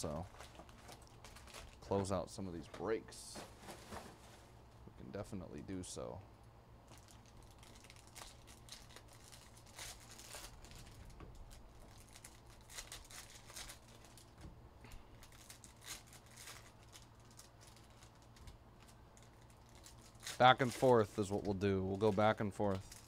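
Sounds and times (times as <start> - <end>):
foil wrappers crinkling: 0.0 - 4.6, 6.9 - 14.5, 15.1 - 23.0
low steady hum: 0.0 - 23.0.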